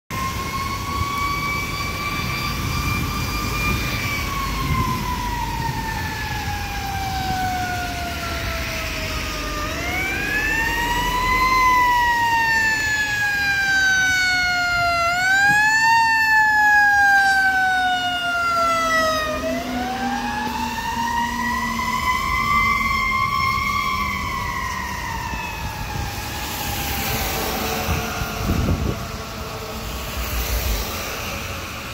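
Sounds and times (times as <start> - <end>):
fire engine siren wailing: 0.1 - 31.9.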